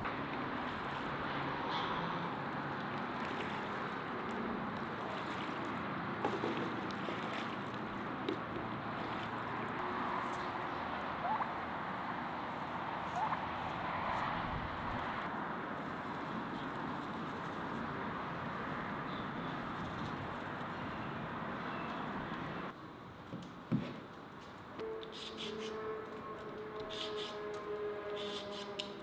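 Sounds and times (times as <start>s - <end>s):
geese ducks and turkey calling: 11.2s - 11.6s.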